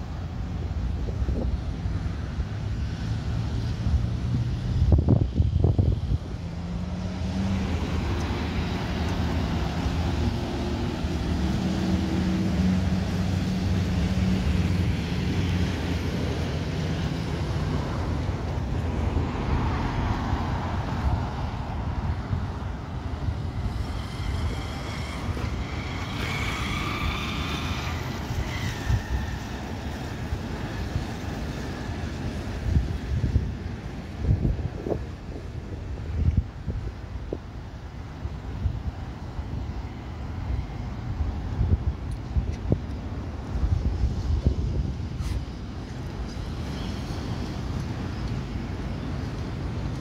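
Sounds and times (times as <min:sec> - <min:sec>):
street traffic: 0:00.0 - 0:50.0
jet engine whine: 0:04.8 - 0:38.4
jet engines rumbling: 0:04.8 - 0:50.0.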